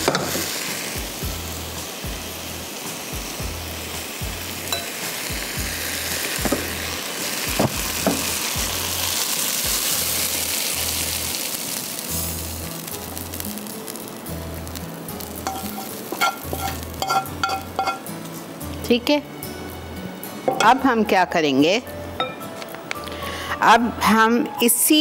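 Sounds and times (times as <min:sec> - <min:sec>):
chicken sizzling in a pan: 0:00.0 - 0:19.0.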